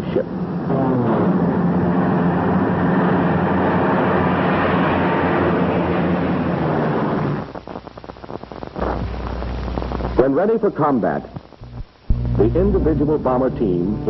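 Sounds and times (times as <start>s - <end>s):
aircraft engines running: 0.0s - 7.4s
low hum: 0.0s - 10.2s, 11.2s - 14.0s
faint crackle: 4.8s - 12.8s.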